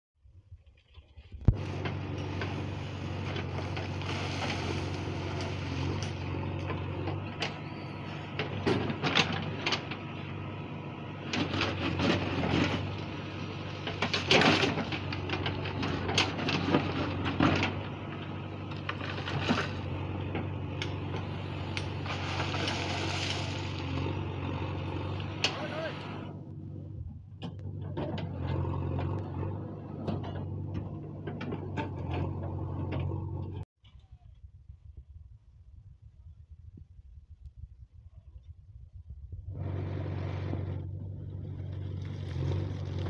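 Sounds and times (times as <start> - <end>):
earth and stones scraping: 0.6 - 10.1, 11.2 - 26.2, 39.5 - 43.0
diesel engine running: 1.5 - 33.7, 39.3 - 43.0.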